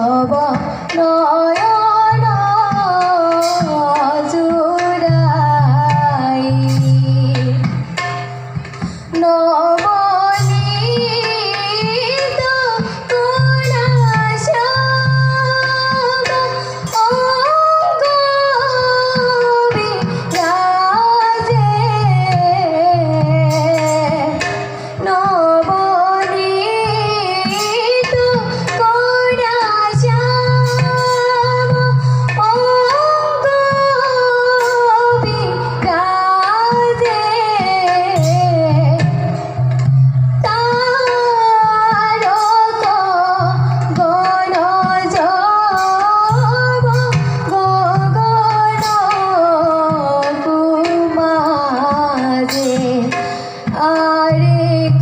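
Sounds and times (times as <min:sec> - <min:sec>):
girl singing devotional song: 0:00.0 - 0:07.6, 0:09.1 - 0:24.4, 0:25.0 - 0:39.3, 0:40.4 - 0:55.0.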